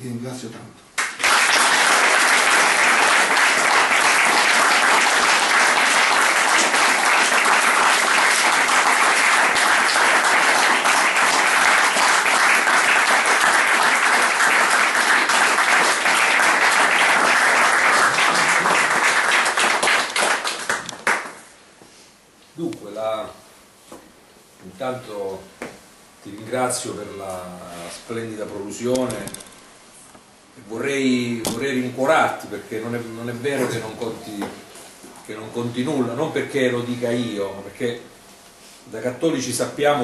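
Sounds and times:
audience applauding: 0:01.0 - 0:21.5.

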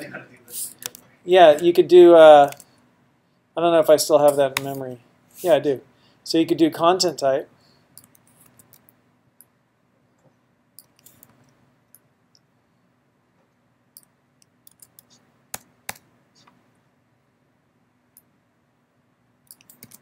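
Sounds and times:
computer keyboard typing: 0:14.6 - 0:16.0, 0:19.5 - 0:20.0.

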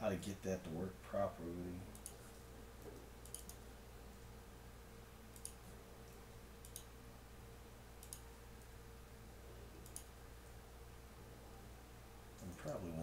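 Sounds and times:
low steady hum: 0:00.0 - 0:13.0
mouse and keyboard clicks: 0:03.2 - 0:03.6, 0:08.0 - 0:08.2, 0:09.8 - 0:10.1.

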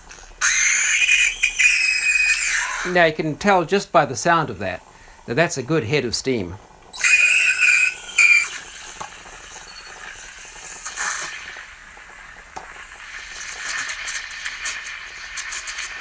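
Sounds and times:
steam wand screeching and hissing: 0:00.0 - 0:03.0, 0:06.9 - 0:11.7, 0:13.0 - 0:16.0
milk frothing crackle: 0:00.0 - 0:16.0.

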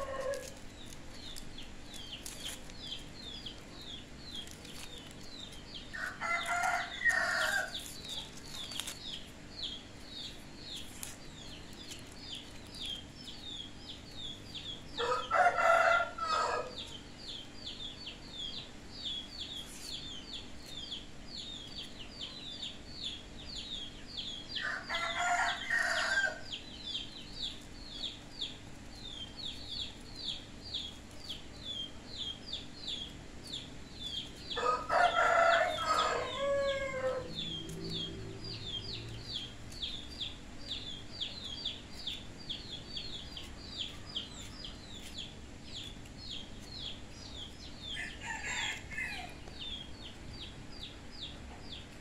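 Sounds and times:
rooster crowing: 0:00.0 - 0:00.6, 0:05.9 - 0:07.9, 0:15.0 - 0:16.8, 0:24.6 - 0:26.5, 0:34.6 - 0:37.5, 0:47.9 - 0:49.5.

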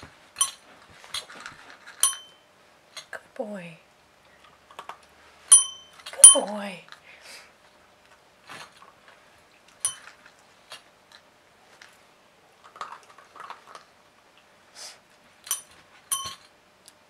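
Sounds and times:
soft rustles: 0:00.0 - 0:02.0, 0:07.6 - 0:10.8
service bell ringing: 0:02.0 - 0:02.4, 0:05.5 - 0:06.5.

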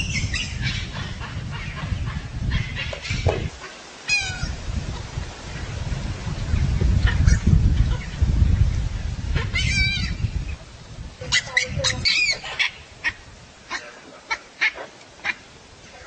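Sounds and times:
baboons barking: 0:11.3 - 0:15.4.

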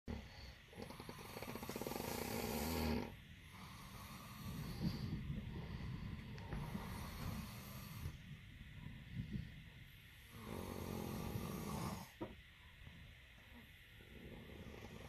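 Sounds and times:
person snoring: 0:00.1 - 0:08.2, 0:10.3 - 0:12.2, 0:14.0 - 0:15.0.

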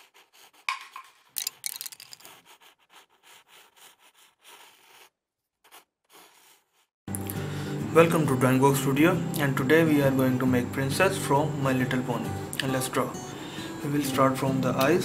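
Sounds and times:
pencil scribbling on paper: 0:00.0 - 0:01.0, 0:02.2 - 0:06.9.

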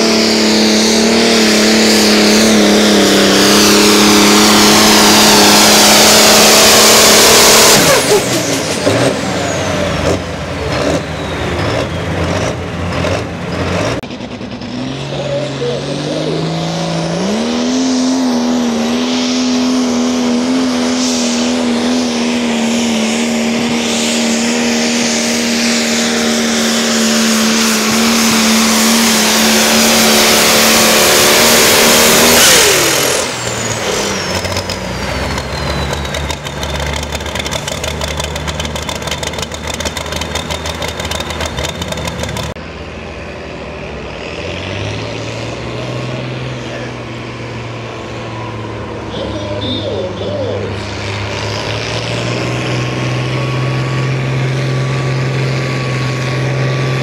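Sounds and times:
diesel engine revving: 0:00.0 - 0:57.0
engine idling: 0:34.3 - 0:43.7.

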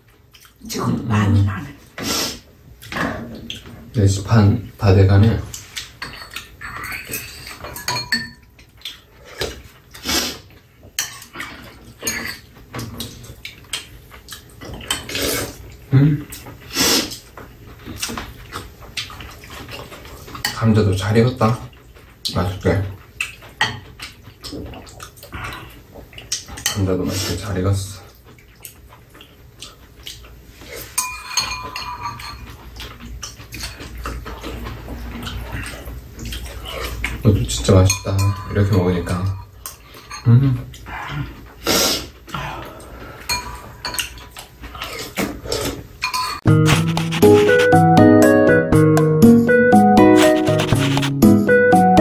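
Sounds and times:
spoons clinking against bowls: 0:06.0 - 0:08.5, 0:31.0 - 0:32.5, 0:37.8 - 0:40.3.

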